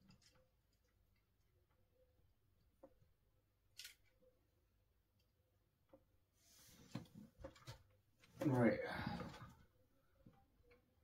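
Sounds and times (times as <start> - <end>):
soft rustle: 6.4 - 7.6.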